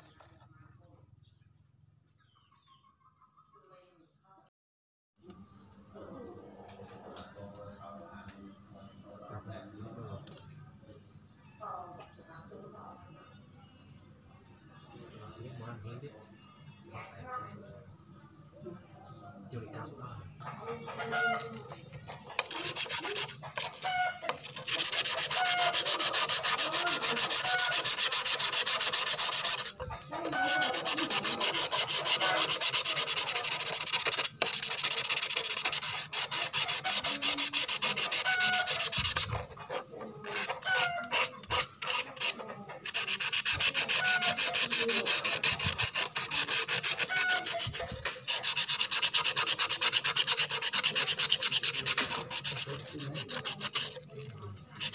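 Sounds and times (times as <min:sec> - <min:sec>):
knife blade scrubbed on abrasive: 0:21.0 - 0:54.9.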